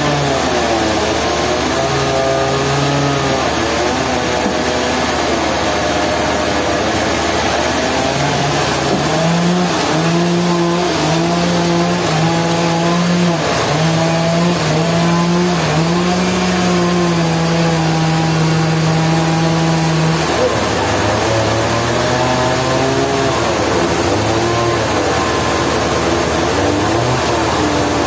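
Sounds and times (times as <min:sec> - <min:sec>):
band sawmill engine hum: 0:00.0 - 0:28.0
machine noise: 0:00.0 - 0:28.0.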